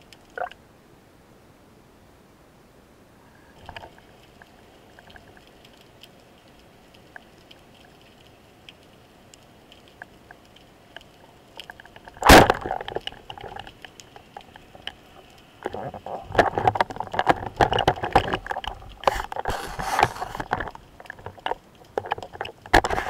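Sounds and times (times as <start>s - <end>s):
faint underwater clicks: 0.0s - 0.6s, 3.5s - 23.0s
speargun firing crack: 12.2s - 12.8s.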